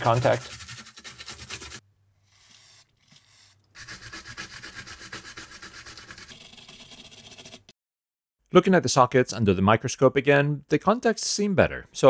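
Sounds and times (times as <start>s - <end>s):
small brush scrubbing: 0.0s - 7.7s.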